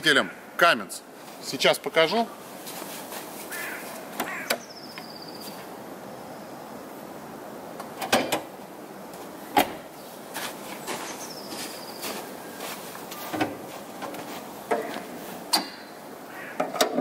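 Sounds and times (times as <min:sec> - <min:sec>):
van door clunks: 0:09.5 - 0:09.9.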